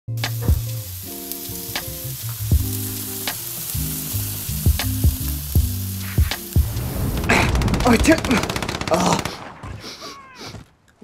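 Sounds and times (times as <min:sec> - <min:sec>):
backing music with drum beat: 0:00.1 - 0:06.8
meat sizzling on a grill: 0:00.1 - 0:07.4.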